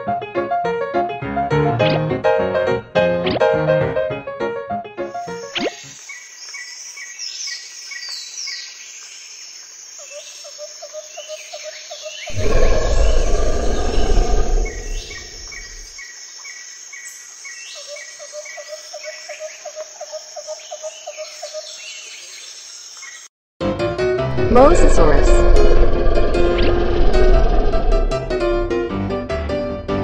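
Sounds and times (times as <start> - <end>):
birds chirping: 12.2 - 16.0
deep rumbling noise: 12.3 - 15.9, 24.2 - 29.0
pulsing insect trill: 12.3 - 16.4.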